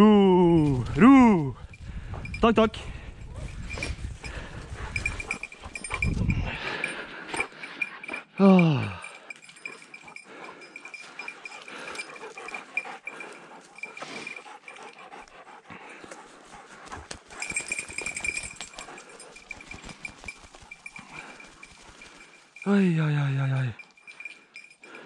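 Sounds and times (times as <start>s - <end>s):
footsteps through undergrowth: 16.2s - 22.6s.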